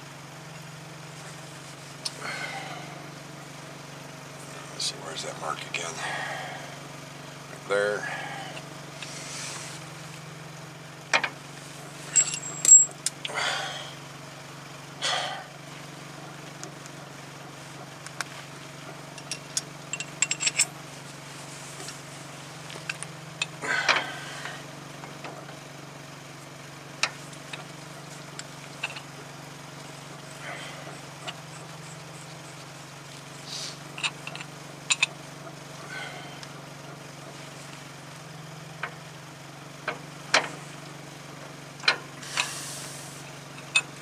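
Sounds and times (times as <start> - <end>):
steady low hum: 0.0 - 44.0
steel tool parts clinking: 12.1 - 13.1, 19.2 - 20.7.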